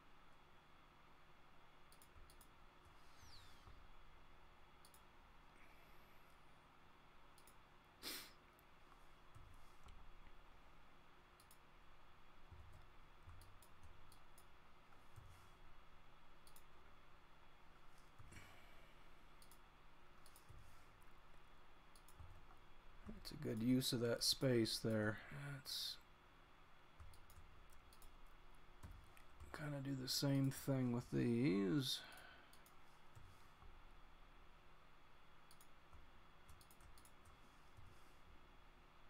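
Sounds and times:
computer mouse and keyboard clicks: 0:01.9 - 0:03.8, 0:12.5 - 0:15.5, 0:20.2 - 0:21.0, 0:21.9 - 0:23.7, 0:27.0 - 0:29.6, 0:35.4 - 0:38.0.

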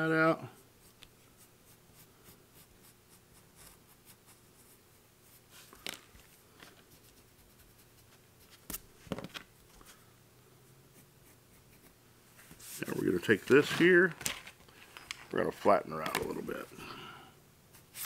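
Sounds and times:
pencil scratching on paper: 0:00.8 - 0:05.4, 0:10.9 - 0:12.0.

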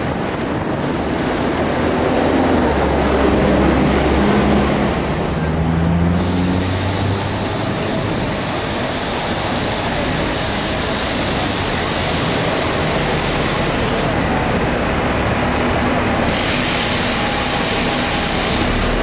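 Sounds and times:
tram wheels rolling on rails: 0:00.0 - 0:19.0
wind: 0:00.0 - 0:19.0.

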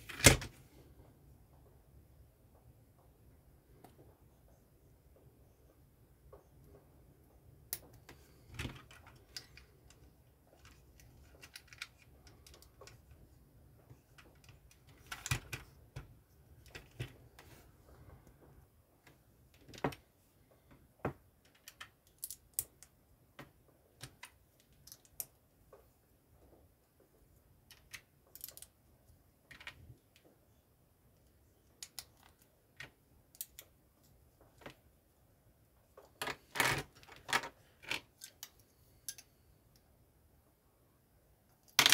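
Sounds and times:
plastic bricks clicking and snapping: 0:41.6 - 0:41.9.

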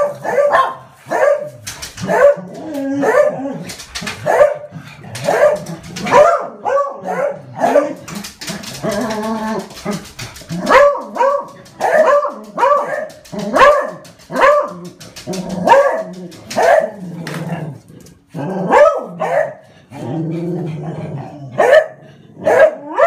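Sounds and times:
dog baying: 0:00.0 - 0:17.4
dogs barking: 0:00.0 - 0:17.4, 0:18.4 - 0:19.7, 0:21.6 - 0:23.0.

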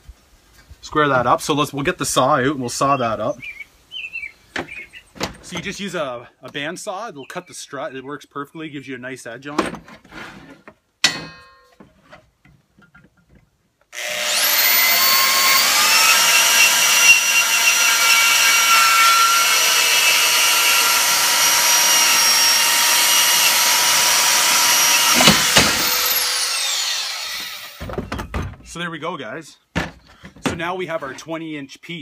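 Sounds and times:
metal clunk: 0:11.0 - 0:12.2
band saw cutting steel: 0:14.0 - 0:27.9.

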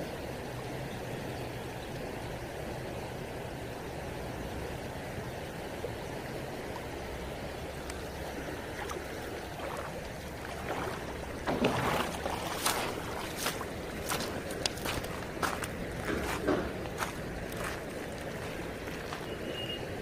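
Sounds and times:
river water running: 0:00.0 - 0:20.0
footsteps crunching on gravel: 0:10.5 - 0:19.5.

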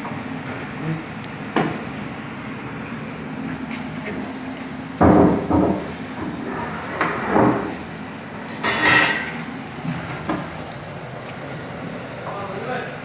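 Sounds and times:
blower and conveyor whirr: 0:00.0 - 0:13.0
knocks and clatters: 0:05.0 - 0:10.8.

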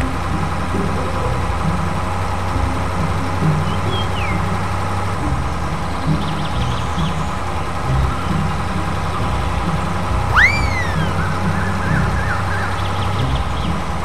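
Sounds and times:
whistle-like sweeping tone: 0:10.3 - 0:11.5.

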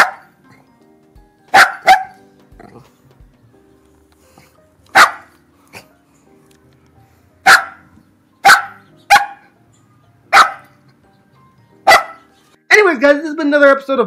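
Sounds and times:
dog barking: 0:00.0 - 0:00.4, 0:01.5 - 0:02.2, 0:04.9 - 0:05.9, 0:07.4 - 0:09.6, 0:10.3 - 0:10.8, 0:11.8 - 0:12.3.

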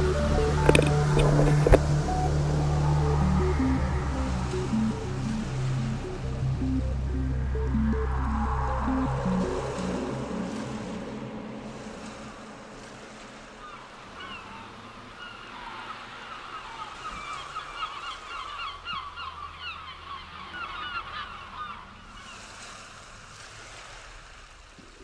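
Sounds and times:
flock of birds calling: 0:13.6 - 0:22.6.

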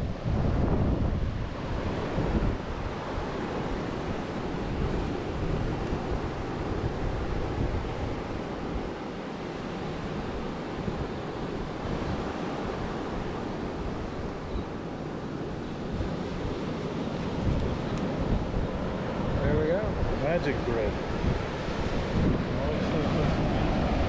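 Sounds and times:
ocean surf on beach: 0:00.0 - 0:24.0
wind buffeting microphone: 0:00.0 - 0:24.0.

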